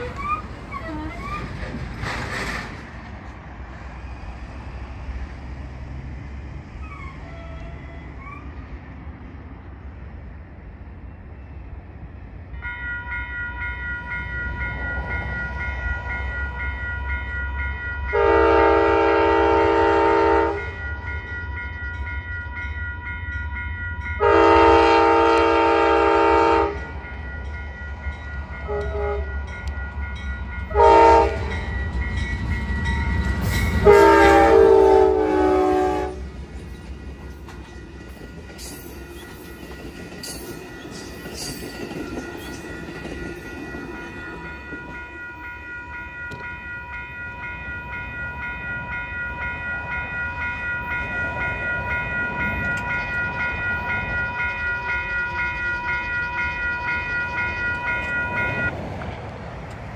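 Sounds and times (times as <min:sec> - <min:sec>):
train cars rushing over rails: 0:00.0 - 0:59.9
crossing bell ringing: 0:12.5 - 0:58.8
train horn blasts: 0:18.0 - 0:20.8, 0:24.2 - 0:27.0, 0:28.6 - 0:29.4, 0:30.7 - 0:31.7, 0:33.6 - 0:36.3.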